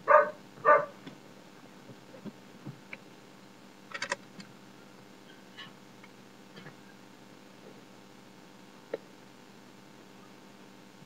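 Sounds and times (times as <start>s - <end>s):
dog barking: 0.0s - 1.0s
rattle of sharp clicks: 3.9s - 4.3s.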